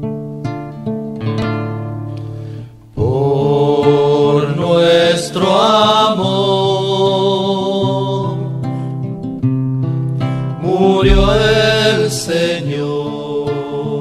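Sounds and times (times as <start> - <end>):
choir singing a hymn: 3.0 - 8.5, 10.6 - 14.0
strummed acoustic guitar: 8.2 - 12.8.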